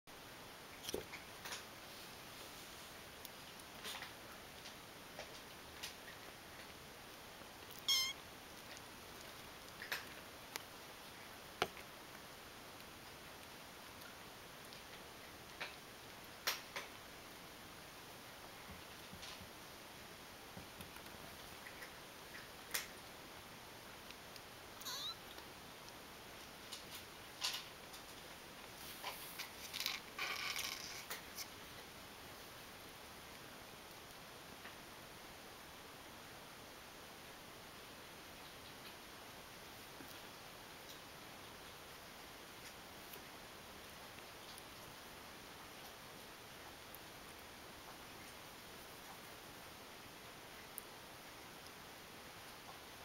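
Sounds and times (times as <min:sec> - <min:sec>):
faint clicks and taps: 0:03.2 - 0:07.9, 0:11.6 - 0:12.2, 0:18.4 - 0:19.6, 0:20.5 - 0:23.1
kitten mewing: 0:07.7 - 0:08.2, 0:24.8 - 0:25.4
kittens scratching on a towel: 0:26.4 - 0:31.6.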